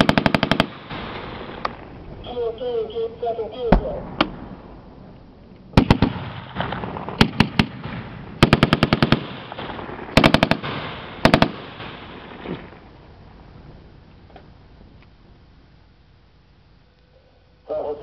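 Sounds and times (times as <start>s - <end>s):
machine guns firing bursts: 0.0s - 1.6s, 5.8s - 12.8s.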